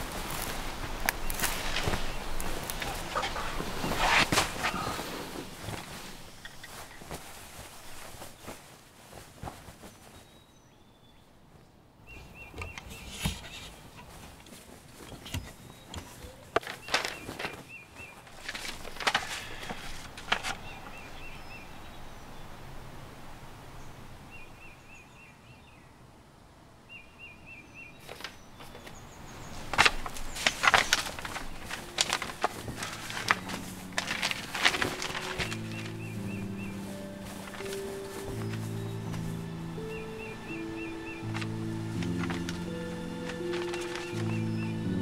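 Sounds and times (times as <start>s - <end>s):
papers rustling: 0.0s - 10.5s, 11.6s - 21.6s, 28.0s - 45.0s
high chirping trills: 27.0s - 45.0s.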